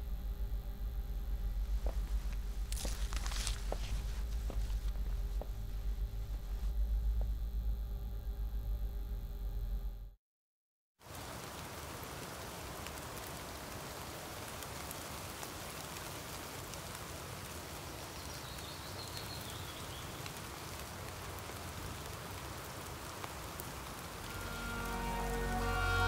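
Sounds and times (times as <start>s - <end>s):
rain falling: 1.6s - 5.6s, 11.0s - 26.0s.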